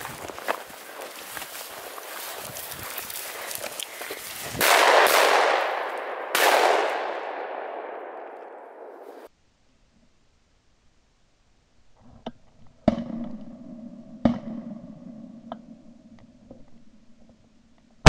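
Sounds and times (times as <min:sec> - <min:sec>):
footsteps through heather: 0:00.0 - 0:09.3
shotgun shots: 0:04.6 - 0:09.3.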